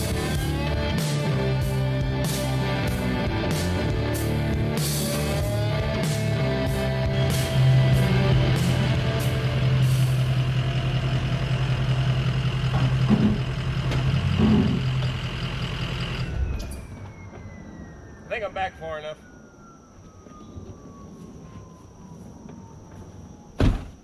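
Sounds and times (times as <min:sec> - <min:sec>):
rock music with guitar and drums: 0:00.0 - 0:10.6.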